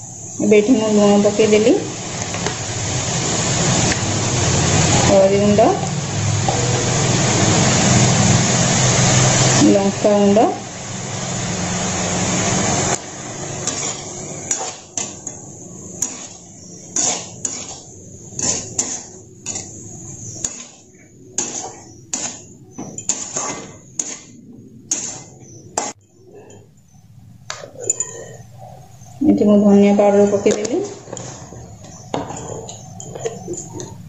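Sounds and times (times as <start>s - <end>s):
steady hiss: 0.0s - 34.0s
metal spatula scraping wok: 11.1s - 26.6s.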